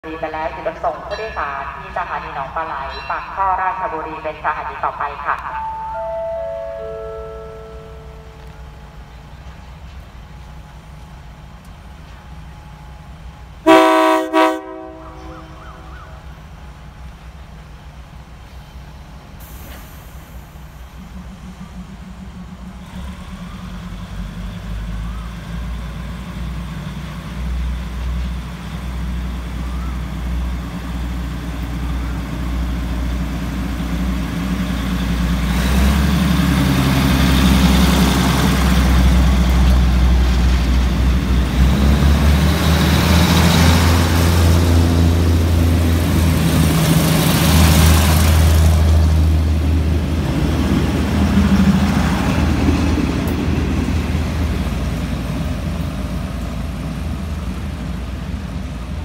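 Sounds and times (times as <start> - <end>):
diesel train passing: 0.0 - 59.0
train horn blasts: 6.0 - 8.7, 13.6 - 15.7.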